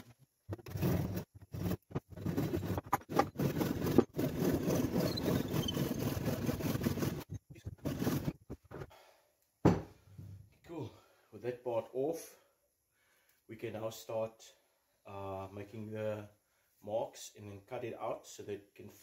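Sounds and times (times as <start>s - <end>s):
power saw cutting wood: 3.0s - 7.3s.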